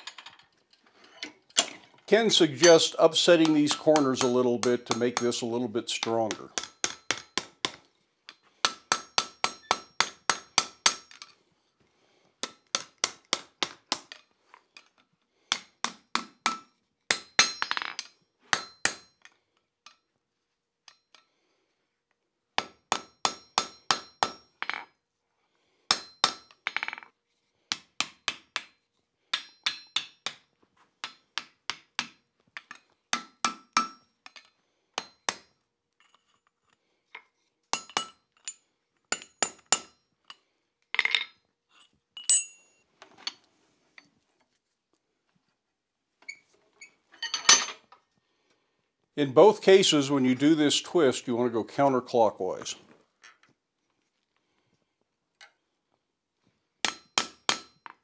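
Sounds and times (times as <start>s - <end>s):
hammer striking metal on anvil: 8.6s - 11.2s, 18.5s - 19.2s, 22.6s - 24.4s, 29.3s - 30.4s, 33.2s - 34.1s, 56.8s - 57.8s.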